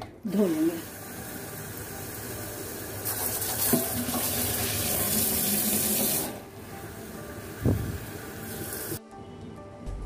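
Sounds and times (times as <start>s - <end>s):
tap water running into bottle: 0.4s - 9.0s.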